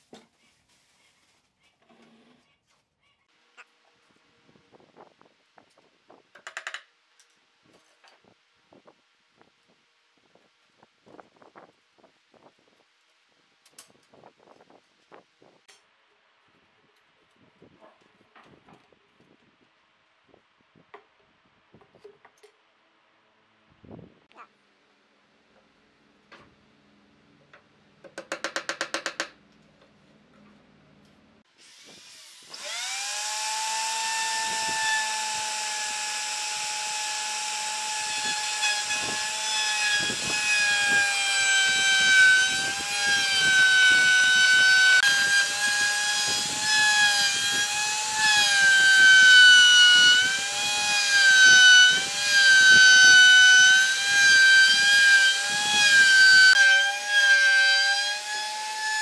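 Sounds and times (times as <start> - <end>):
electric router whining: 32.4 - 57.6.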